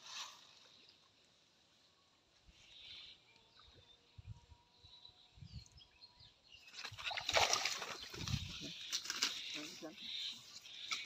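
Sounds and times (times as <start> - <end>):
water splashing and rustling: 6.6 - 11.0.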